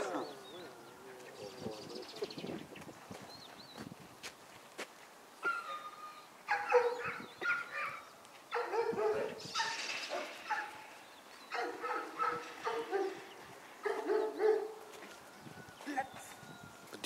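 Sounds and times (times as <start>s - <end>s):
dog barking: 6.5s - 10.8s, 11.5s - 14.9s.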